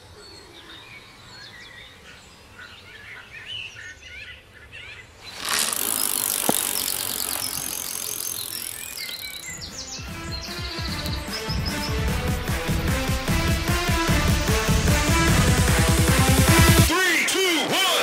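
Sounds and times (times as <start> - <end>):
small birds chirping: 0.0 - 12.4.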